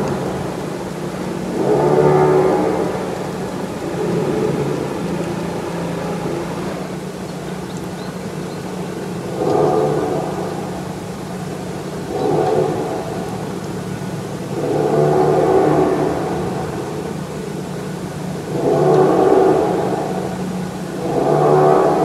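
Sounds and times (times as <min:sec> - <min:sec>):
low steady drone: 0:00.0 - 0:22.0.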